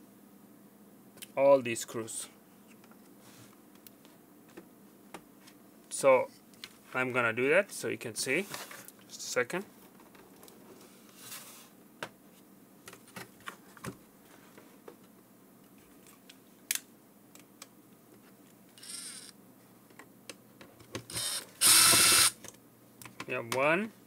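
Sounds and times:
screwdriver clicks and ratcheting: 21.1s - 22.3s.

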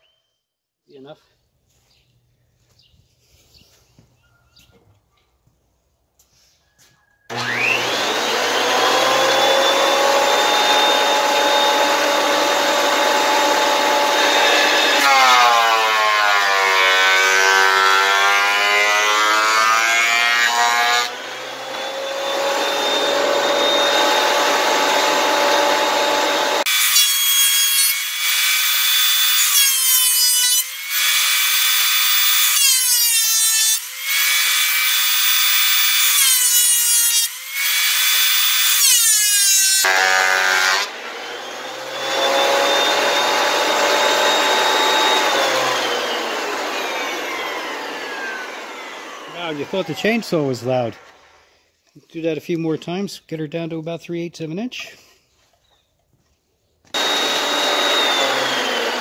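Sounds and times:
thickness planer motor whine: 7.3s - 29.4s, 39.8s - 51.4s, 56.9s - 59.0s.

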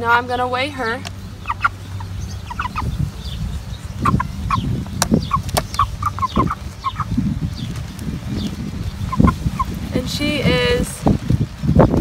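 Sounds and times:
chickens clucking: 0.9s - 10.2s
sharp clicks: 5.0s - 6.6s.

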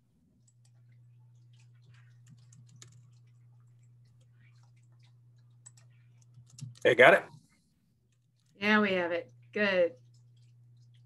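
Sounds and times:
keyboard and mouse clicking: 1.4s - 6.9s.

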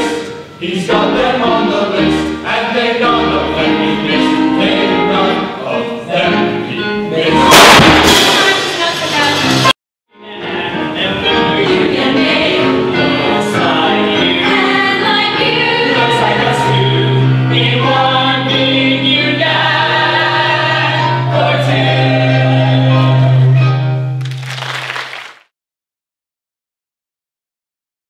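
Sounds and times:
gospel choir singing: 0.0s - 9.7s, 10.3s - 23.6s.

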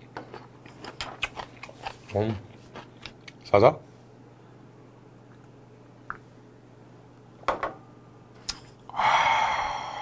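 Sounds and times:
man exhaling breathily: 8.9s - 10.0s.

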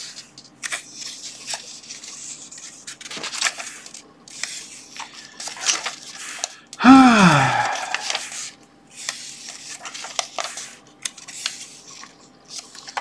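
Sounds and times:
book pages rustling: 0.0s - 6.6s, 7.7s - 13.0s.

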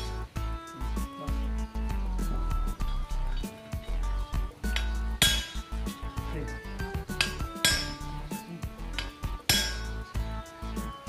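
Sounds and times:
background music: 0.0s - 11.0s
hammer striking metal: 4.6s - 6.0s, 7.1s - 8.3s, 8.9s - 10.1s.

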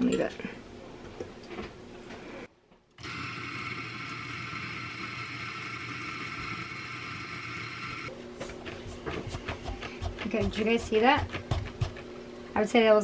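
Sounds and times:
coffee grinder motor whirring: 3.0s - 8.1s.

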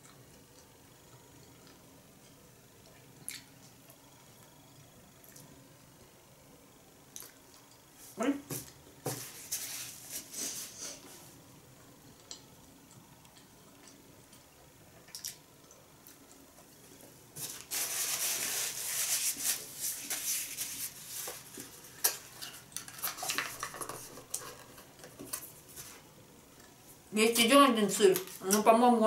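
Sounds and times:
food packaging rustling: 17.4s - 26.0s.

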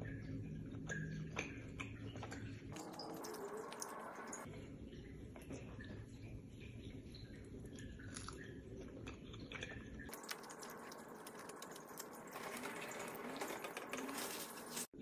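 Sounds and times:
mouth chewing wet clicks: 7.7s - 12.4s.

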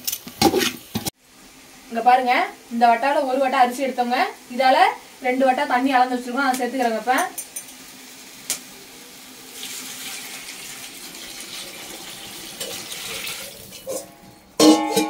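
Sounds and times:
water pouring into a pot: 7.8s - 14.6s.

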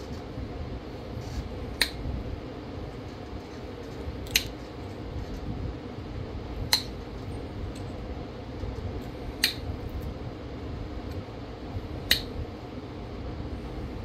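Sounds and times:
stone flaking clicks: 4.2s - 4.6s, 9.4s - 9.6s.

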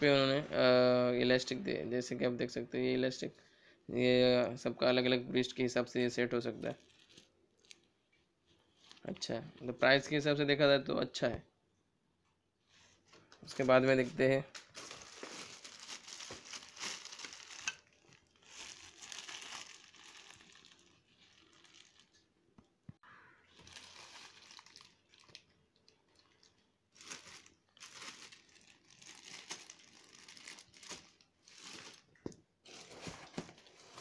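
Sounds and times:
plastic packaging crinkling: 6.4s - 9.4s, 13.6s - 22.6s, 23.5s - 34.0s.

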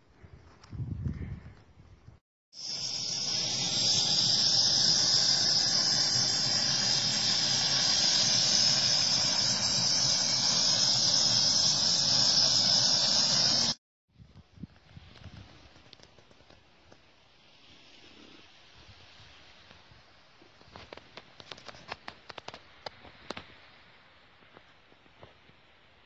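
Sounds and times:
gas stove burner hissing: 2.6s - 13.8s.

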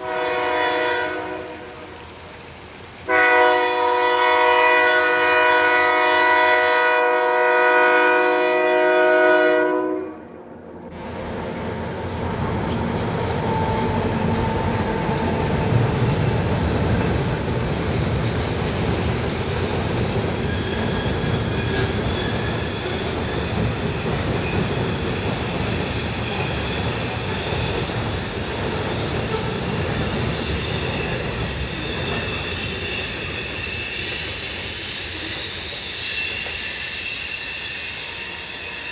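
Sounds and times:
train wheels rumbling on rail: 0.0s - 9.8s, 10.9s - 38.9s
high-pitched wheel squeals: 18.9s - 38.9s.

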